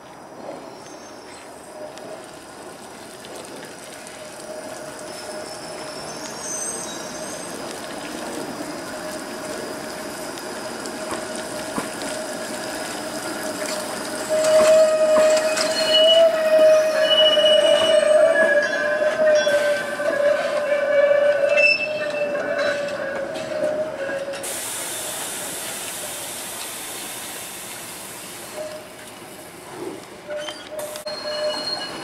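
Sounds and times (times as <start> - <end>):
streetcar wheels squealing: 5.0 - 7.7, 13.6 - 26.1, 28.5 - 29.0, 30.2 - 32.0.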